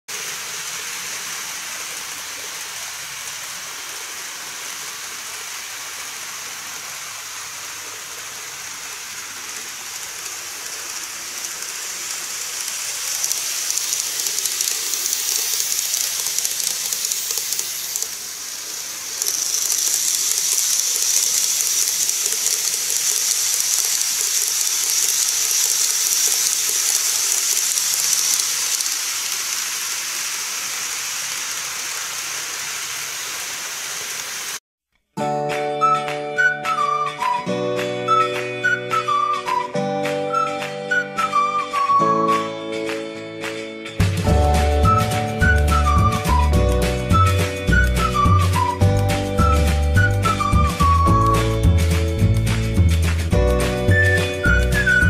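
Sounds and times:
model train wheels and motors: 0.1s - 34.6s, 44.0s - 55.0s.

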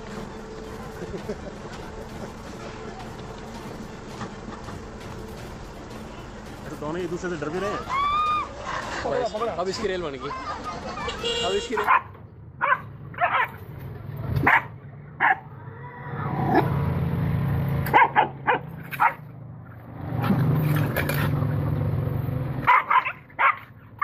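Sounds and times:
dog barking and yelping: 11.8s - 13.6s, 14.4s - 15.5s, 17.9s - 19.3s, 22.6s - 23.7s.

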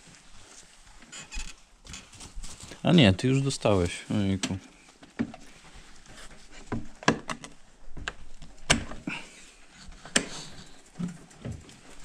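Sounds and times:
wooden knocks and latch clicks: 6.7s - 9.0s.

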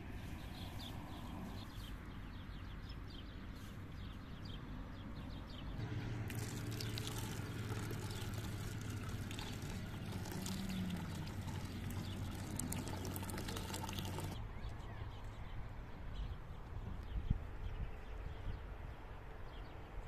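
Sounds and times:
water pouring into pot: 6.3s - 14.4s.

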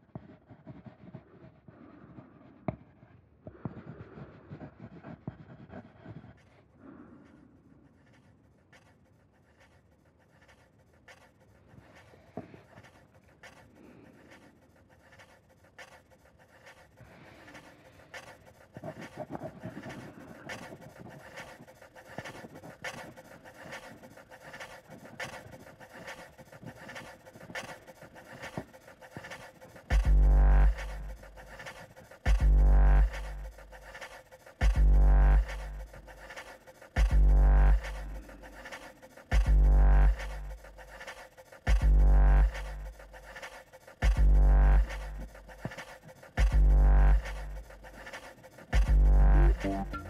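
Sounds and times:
quiet panting breaths: 0.0s - 50.0s
scratchy rustles: 7.3s - 30.0s.

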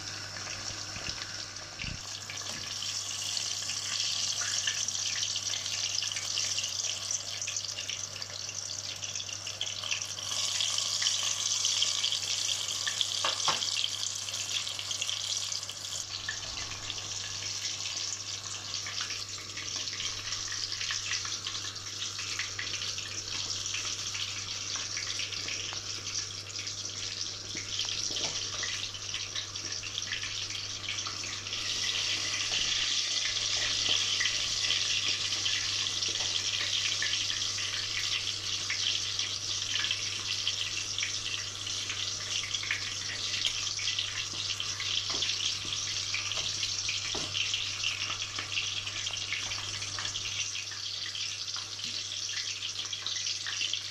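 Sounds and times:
food deep-frying in oil: 0.0s - 53.9s.

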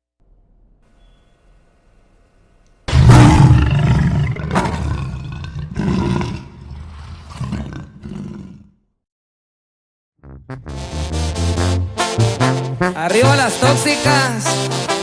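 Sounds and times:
lion roaring: 2.9s - 8.9s.

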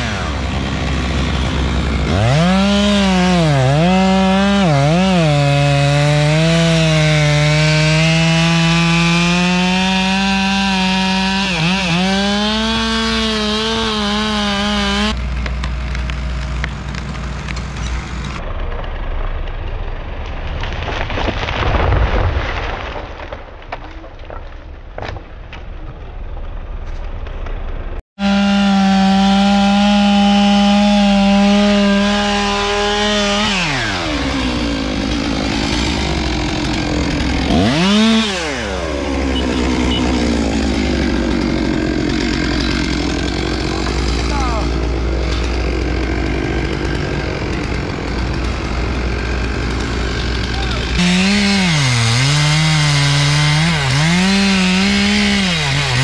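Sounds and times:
chainsaw cutting wood at full throttle: 0.0s - 18.4s, 28.2s - 56.0s
sharp cracks: 15.1s - 27.9s.

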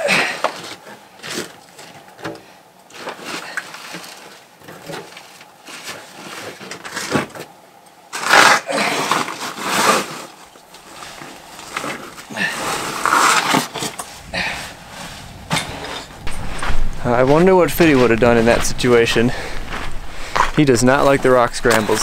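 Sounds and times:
backpack scraping against sandstone: 8.2s - 22.0s.

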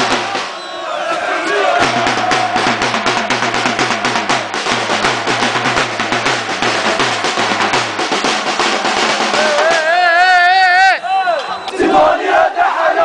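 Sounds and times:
deep bass drum pattern: 0.0s - 0.5s, 1.7s - 10.2s
snare-like drum strokes: 0.0s - 10.2s.

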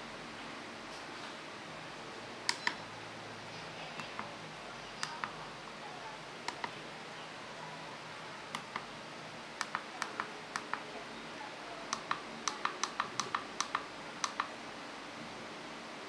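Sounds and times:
faint steady hiss: 0.0s - 16.0s
keypad buttons clicking: 2.5s - 2.8s, 4.0s - 4.4s, 6.5s - 6.8s, 8.5s - 8.9s, 9.6s - 10.9s, 11.9s - 14.5s.

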